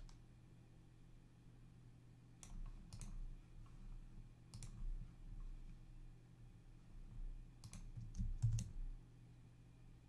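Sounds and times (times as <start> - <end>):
faint steady low hum: 0.0 - 10.0
computer mouse clicking: 2.4 - 3.8, 4.5 - 4.9, 7.6 - 8.8.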